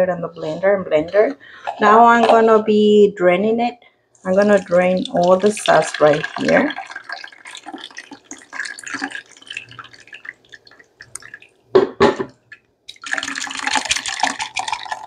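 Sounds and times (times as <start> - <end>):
sauce dripping through a sieve: 4.2 - 11.8, 12.4 - 15.0
sauce splashing and swishing: 4.4 - 11.6.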